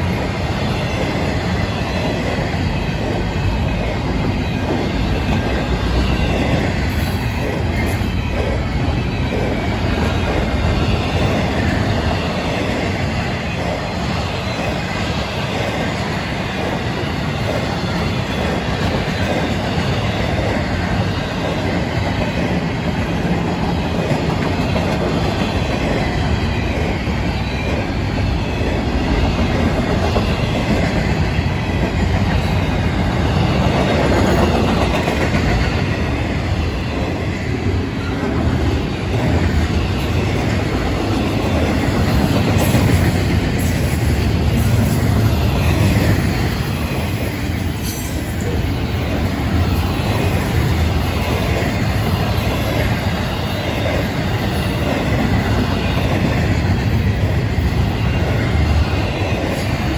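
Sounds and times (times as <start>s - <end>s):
clickety-clack over rail joints: 0.0s - 59.9s
freight train wheels rumbling: 0.0s - 59.9s.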